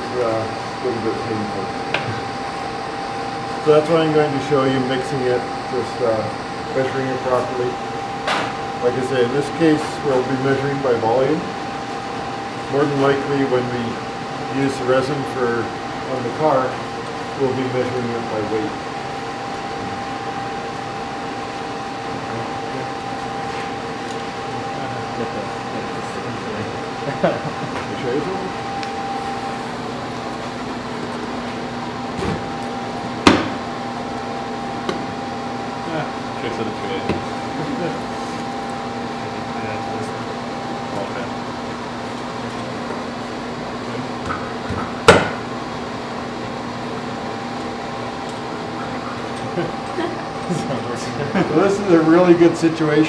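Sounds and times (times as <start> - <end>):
ventilation fan hum: 0.0 - 53.0.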